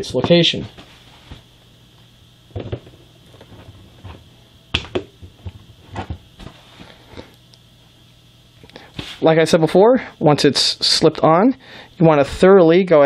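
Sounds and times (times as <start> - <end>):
faint hum: 0.0 - 13.0.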